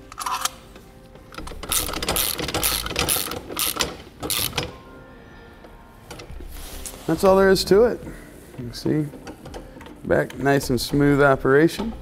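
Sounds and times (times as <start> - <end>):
trailer jack gearbox clicking: 0.0 - 4.8, 8.6 - 12.0.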